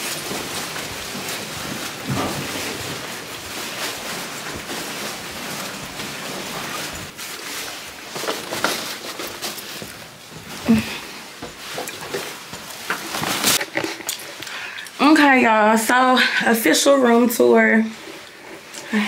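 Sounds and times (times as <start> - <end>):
footsteps on carpet: 0.0 - 8.6
rolling suitcase: 0.0 - 14.0
bags rustling: 0.0 - 14.6.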